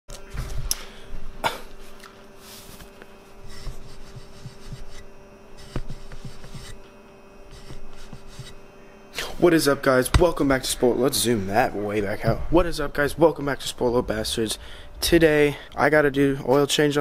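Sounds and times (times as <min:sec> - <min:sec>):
faint steady hum: 0:00.1 - 0:17.0
hands rubbing on camera: 0:02.4 - 0:06.8, 0:07.5 - 0:08.6.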